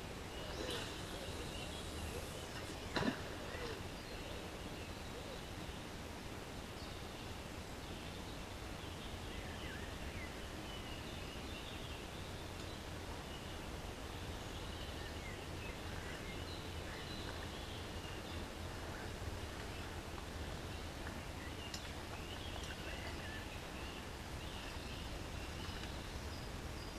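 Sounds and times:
outdoor background noise: 0.0s - 26.9s
songbird chirps: 0.0s - 26.9s.

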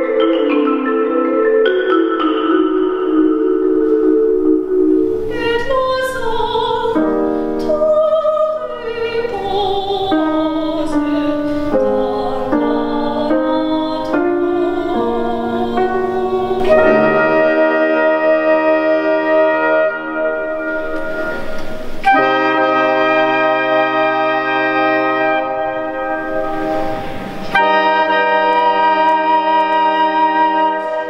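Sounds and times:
wind instruments holding notes: 0.0s - 8.0s, 8.6s - 31.0s
piano accompaniment: 0.0s - 31.0s
women singing classical duet: 5.3s - 19.9s.

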